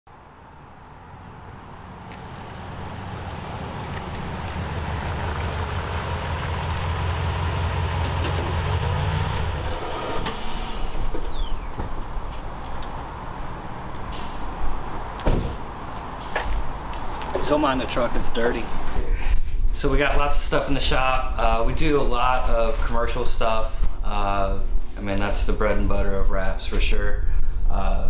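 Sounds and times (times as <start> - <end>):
pickup truck engine running: 1.2 - 12.3
sharp clicks and knocks: 8.0 - 8.6.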